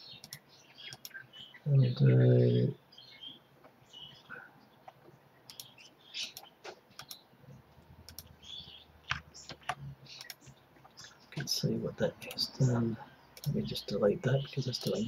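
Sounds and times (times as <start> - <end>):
computer mouse clicks: 0.2 - 1.2, 4.8 - 7.2, 8.0 - 8.3, 9.1 - 11.5, 12.2 - 12.4, 13.4 - 13.6.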